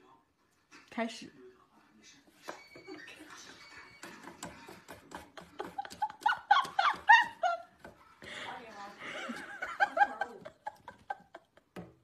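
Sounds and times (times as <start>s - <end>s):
person giggling: 4.0s - 7.7s, 9.0s - 11.8s.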